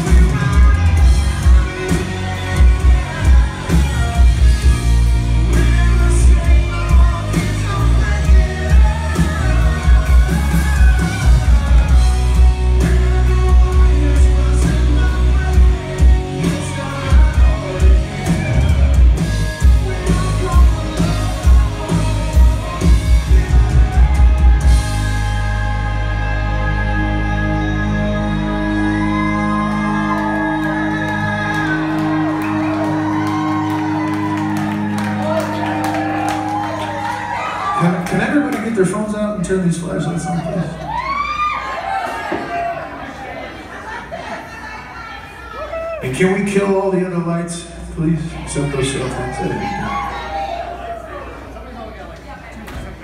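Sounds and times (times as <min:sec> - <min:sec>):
drum kit beat: 0:00.0 - 0:25.9
person singing: 0:00.0 - 0:37.6
electric guitars: 0:00.0 - 0:42.7.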